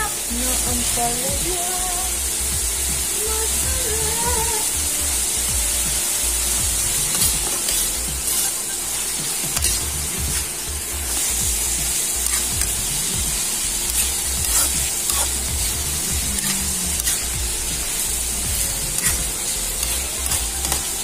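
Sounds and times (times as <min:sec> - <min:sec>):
vegetables sizzling in oil: 0:00.0 - 0:21.0
metal spatula scraping wok: 0:06.2 - 0:21.0.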